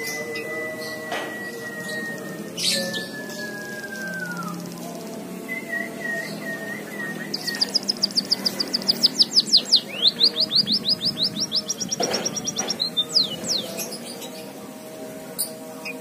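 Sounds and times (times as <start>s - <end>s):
munia singing trilled song: 0.0s - 16.0s.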